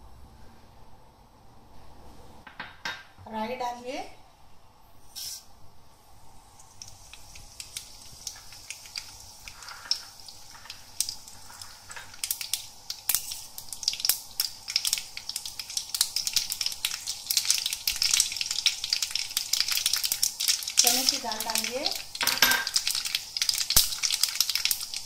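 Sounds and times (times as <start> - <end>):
seeds sizzling in hot oil: 5.0 - 25.0
popping and crackling seeds: 6.6 - 25.0.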